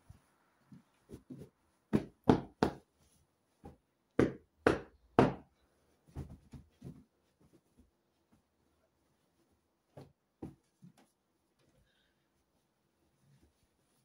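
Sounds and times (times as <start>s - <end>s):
soft pats and rustling: 0.0s - 3.9s, 5.9s - 8.6s.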